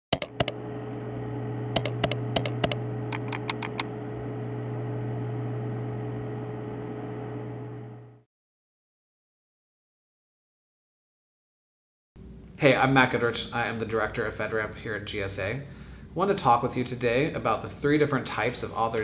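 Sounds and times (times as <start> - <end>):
sharp clicks: 0.1 - 0.6, 1.8 - 3.9
low hum: 0.2 - 8.2.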